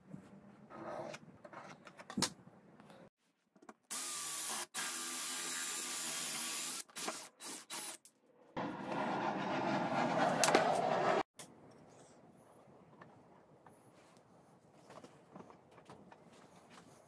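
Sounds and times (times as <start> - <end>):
drill cutting wood: 3.9 - 8.0.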